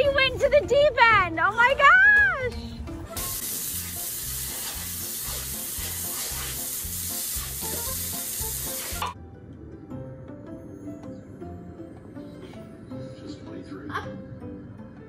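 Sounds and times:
hose spraying onto concrete: 0:03.2 - 0:09.2.

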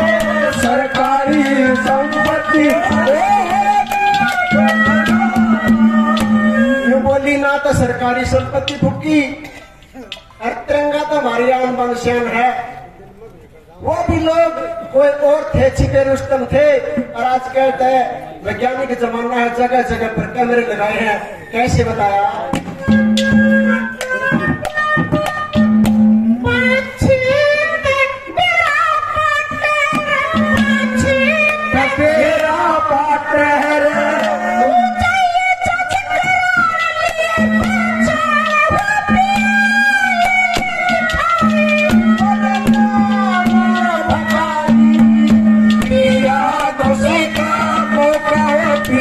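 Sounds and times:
man singing into a microphone: 0:00.0 - 0:09.4, 0:26.2 - 0:49.0
drum strokes: 0:00.0 - 0:10.4, 0:21.7 - 0:49.0
steady held instrumental tones: 0:00.0 - 0:13.2, 0:13.9 - 0:49.0.

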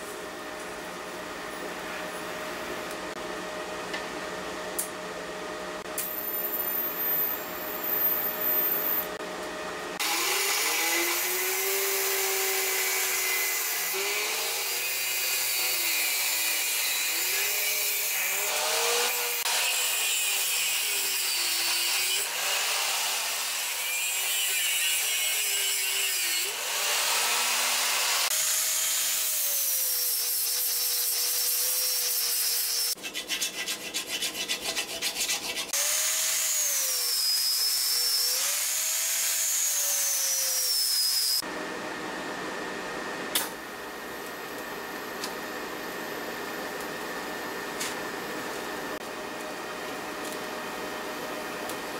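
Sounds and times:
angle grinder grinding steel: 0:10.0 - 0:41.4
tig welding: 0:10.2 - 0:41.4
wire brush scrubbing steel: 0:29.9 - 0:35.8.

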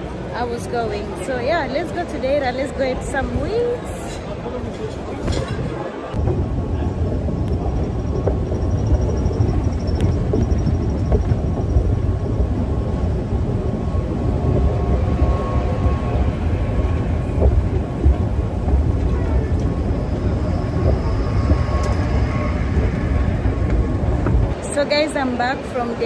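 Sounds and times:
train rumbling from inside: 0:05.7 - 0:26.0.

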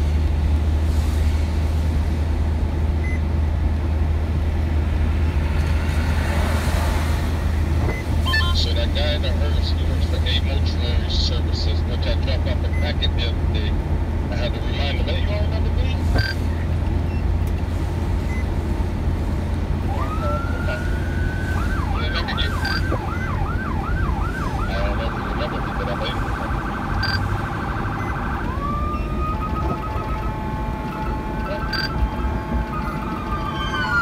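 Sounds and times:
car driving rumble: 0:00.0 - 0:34.0
police siren wailing: 0:19.7 - 0:34.0.

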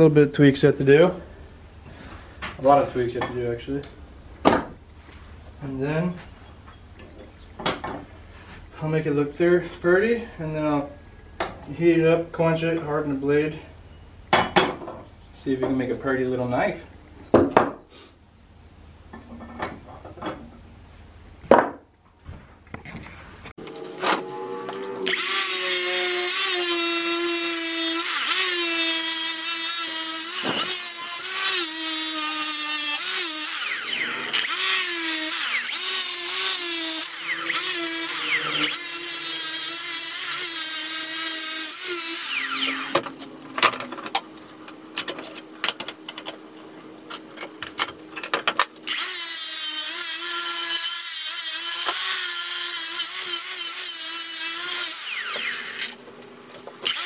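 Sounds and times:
angle grinder grinding steel: 0:23.6 - 0:43.2, 0:48.8 - 0:56.0.

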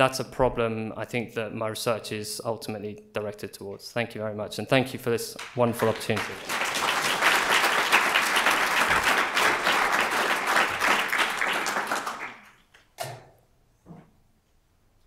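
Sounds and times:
audience applauding: 0:05.4 - 0:12.6.

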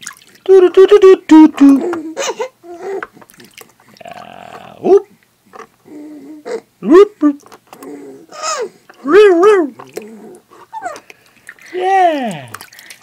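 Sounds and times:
baby laughing: 0:01.6 - 0:03.1
baby cooing: 0:01.7 - 0:03.2, 0:04.0 - 0:05.0, 0:05.9 - 0:07.1, 0:07.8 - 0:11.0.

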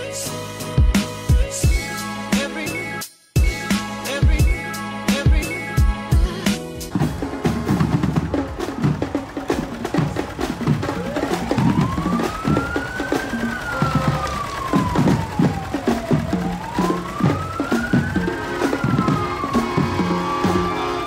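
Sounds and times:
recorded christmas song: 0:00.0 - 0:06.8
parade drums: 0:03.4 - 0:21.0
siren wailing: 0:10.6 - 0:21.0.

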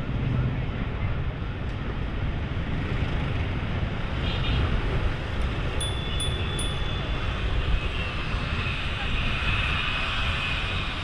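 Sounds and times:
road noise: 0:00.0 - 0:11.0
wind noise: 0:00.0 - 0:11.0
small bell struck: 0:05.8 - 0:06.8.

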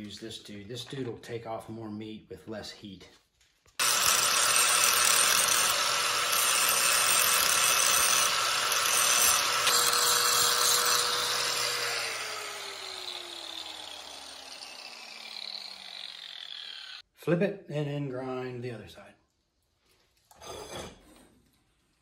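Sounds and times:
angle grinder grinding metal: 0:03.8 - 0:17.0.

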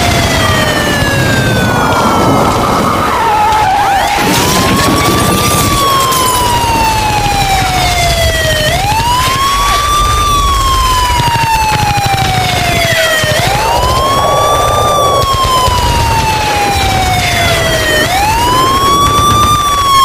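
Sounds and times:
siren wailing: 0:00.0 - 0:20.0
low rumble: 0:13.0 - 0:20.0.

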